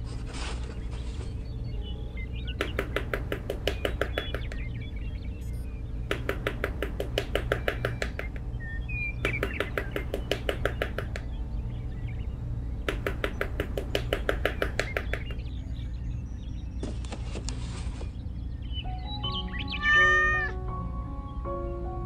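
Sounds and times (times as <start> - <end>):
small hammer tapping rapidly: 2.6 - 4.6, 6.1 - 8.4, 9.2 - 11.3, 12.8 - 15.4.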